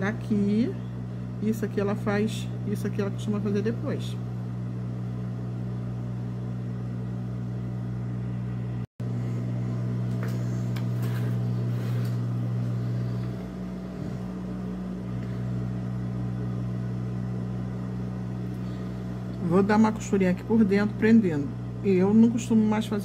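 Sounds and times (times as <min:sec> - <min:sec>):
sewing machine motor hum: 0:09.0 - 0:22.0.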